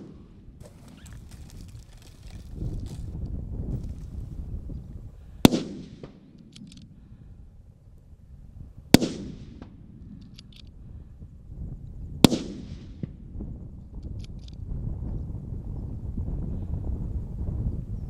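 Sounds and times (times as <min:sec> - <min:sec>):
rifle shots echoing: 0:00.0 - 0:01.0, 0:05.4 - 0:06.9, 0:08.9 - 0:10.4, 0:12.2 - 0:13.2.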